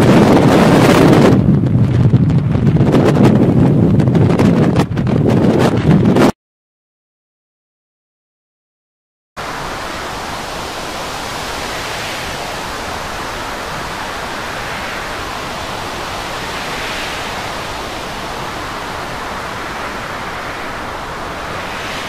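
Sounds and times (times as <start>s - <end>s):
storm wind: 0.0s - 6.3s, 9.4s - 22.0s
waves breaking: 9.4s - 22.0s.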